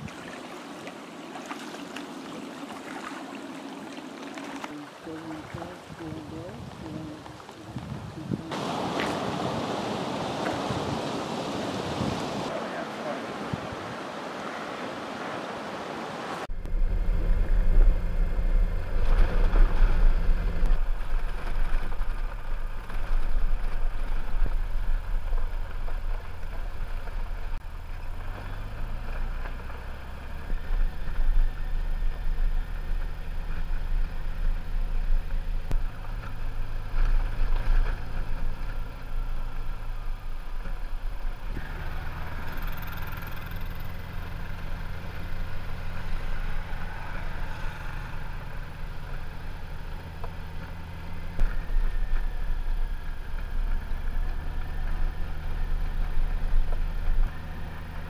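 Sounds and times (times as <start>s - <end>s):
wind and road noise: 0.0s - 58.0s
motorcycle engine running: 16.5s - 58.0s.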